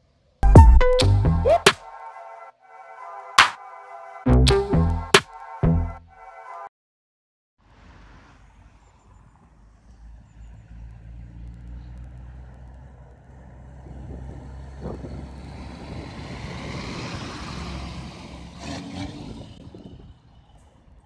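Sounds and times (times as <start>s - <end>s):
tyre and road noise: 7.6s - 21.0s
diesel truck engine: 7.7s - 21.0s.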